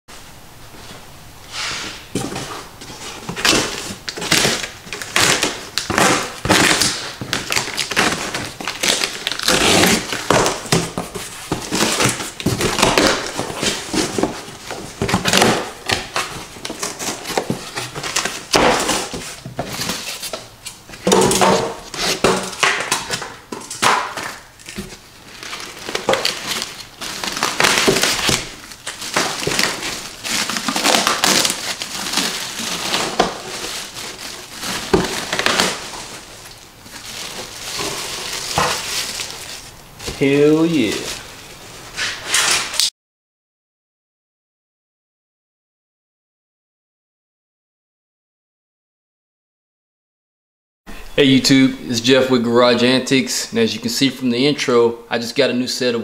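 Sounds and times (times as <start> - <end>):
cardboard flaps tearing and thudding: 2.1 - 40.3
plastic bag crinkling: 2.9 - 20.4, 24.2 - 41.9
tape ripping off cardboard: 3.3 - 39.6, 42.0 - 42.9.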